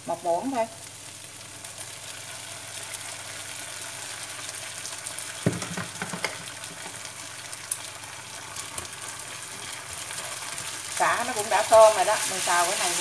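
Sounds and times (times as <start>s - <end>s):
food sizzling in frying pan: 0.0s - 13.0s
sharp knocks: 5.5s - 6.4s.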